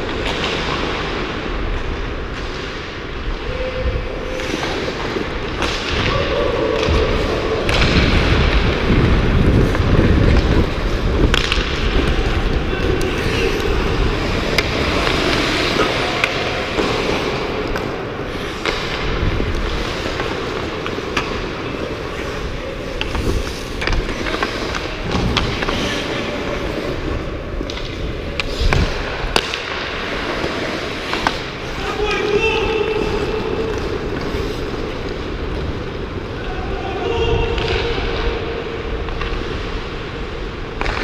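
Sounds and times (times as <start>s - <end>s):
hockey sticks and puck clacking: 0.0s - 41.0s
skate blades scraping ice: 4.2s - 6.1s, 6.8s - 36.4s.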